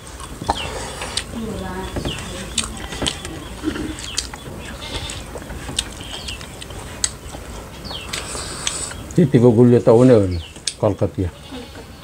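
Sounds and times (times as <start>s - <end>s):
chewing and mouth clicks: 0.2s - 1.4s, 2.5s - 9.2s
fingers working food on plates: 0.2s - 9.2s.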